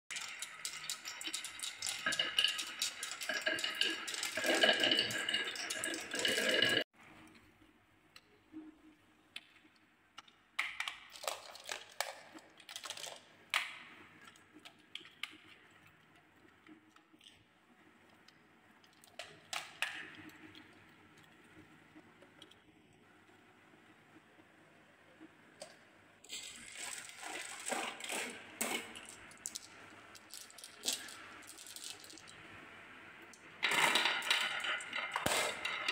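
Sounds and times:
marbles rolling down wooden run: 0.3 - 6.8, 33.6 - 35.9
plastic toy truck rattling: 33.6 - 35.9.

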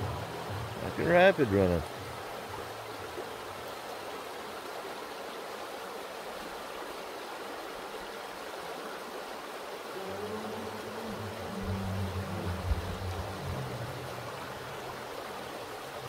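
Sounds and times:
river rapids rushing: 0.0 - 16.0
low hum: 10.0 - 15.0.

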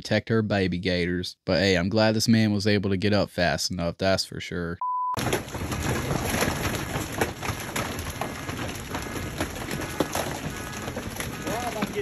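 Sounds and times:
small crackles and pops: 5.2 - 12.0.

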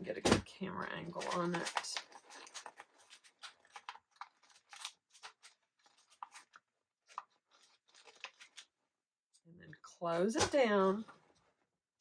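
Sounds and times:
chip bag crinkling: 1.3 - 8.7.

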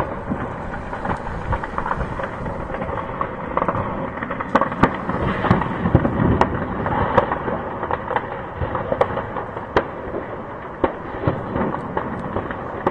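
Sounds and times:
sharp loud cracks: 0.0 - 9.5
explosions: 0.0 - 12.9.

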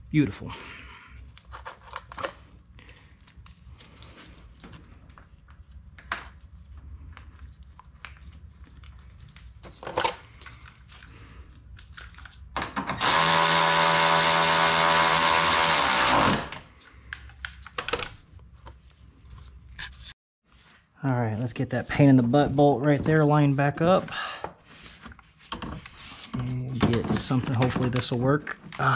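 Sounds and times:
electric ratchet running: 13.0 - 16.6.

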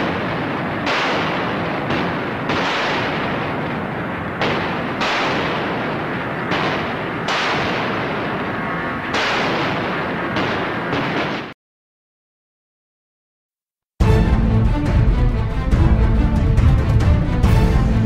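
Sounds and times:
naval guns firing heavy blasts: 0.0 - 11.6.

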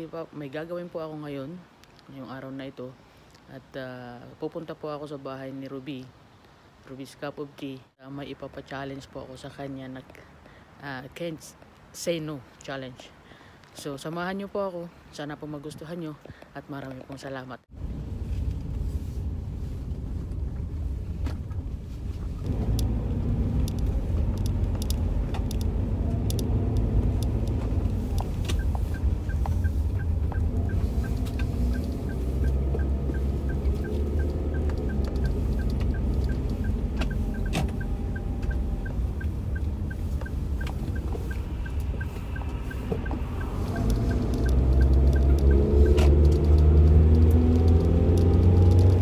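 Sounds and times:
engine and road rumble: 0.0 - 49.0
light regular ticking: 22.4 - 49.0.

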